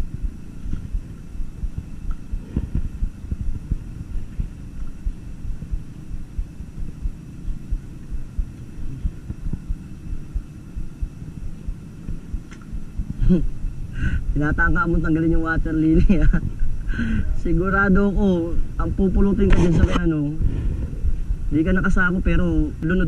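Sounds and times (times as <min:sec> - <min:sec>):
faint high whine: 0:00.0 - 0:23.0
wind buffeting microphone: 0:00.0 - 0:23.0.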